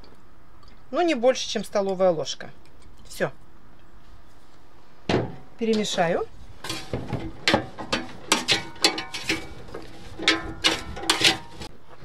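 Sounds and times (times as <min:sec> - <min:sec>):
fries rustling and clattering: 0:05.1 - 0:11.7
spatula scraping a basket: 0:06.6 - 0:11.7.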